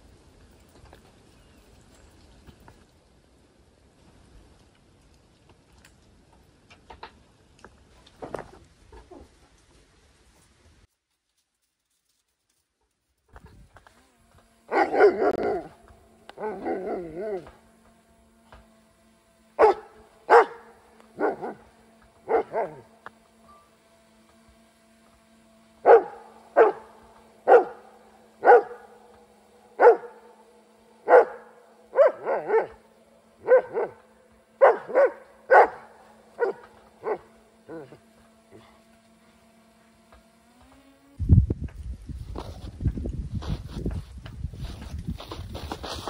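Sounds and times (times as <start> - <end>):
drone humming: 13.4 - 43.0
dog barking: 14.7 - 15.7, 19.6 - 21.6, 22.3 - 22.8, 25.8 - 27.8, 28.4 - 29.0, 29.8 - 30.3, 31.0 - 32.8, 33.4 - 34.0, 34.6 - 38.0
dog wavering cries: 16.4 - 17.5.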